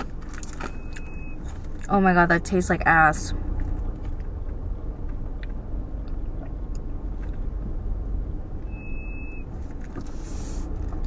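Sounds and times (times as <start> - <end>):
car cabin rumble: 0.0 - 11.0
high-pitched beep: 0.7 - 1.4, 8.7 - 9.4.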